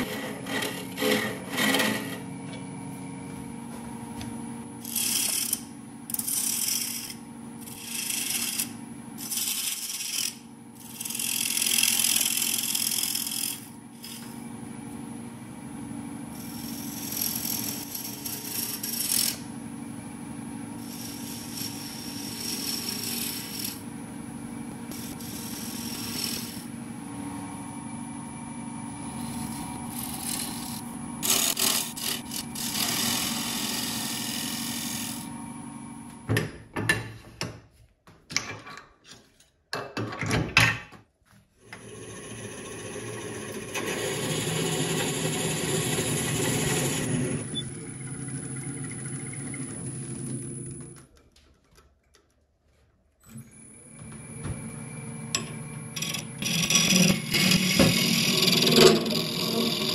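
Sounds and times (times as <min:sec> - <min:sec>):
turning tool cutting wood: 0:00.0 - 0:02.3, 0:04.8 - 0:14.4, 0:16.3 - 0:19.5, 0:20.8 - 0:23.9, 0:24.9 - 0:26.7, 0:28.9 - 0:35.3, 0:41.7 - 0:47.5, 0:55.3 - 0:59.9
wood lathe motor hum: 0:00.0 - 0:15.0, 0:16.3 - 0:19.6, 0:20.6 - 0:36.2, 0:41.7 - 0:51.0, 0:53.4 - 0:59.9.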